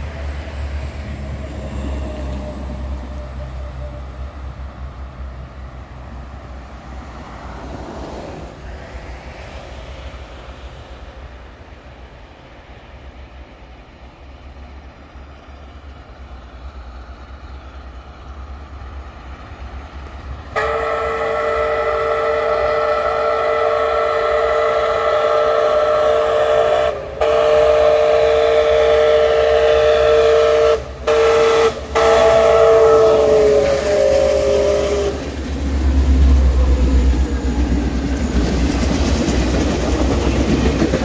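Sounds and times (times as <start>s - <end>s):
train rumble: 0.0s - 41.0s
steam whistle chord: 20.5s - 35.2s.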